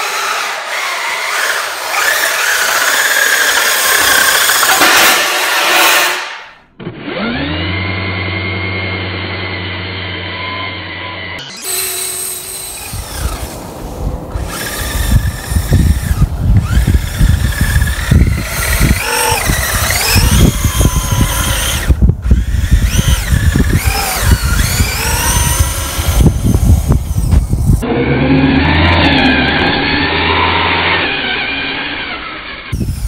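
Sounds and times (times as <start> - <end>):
electric motor whining: 6.8 - 33.0
rough low rumble with knocks: 14.1 - 28.0.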